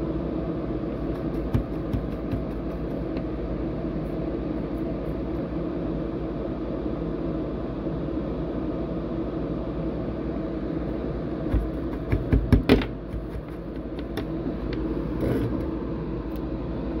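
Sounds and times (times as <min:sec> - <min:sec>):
low mechanical hum and hiss: 0:00.0 - 0:17.0.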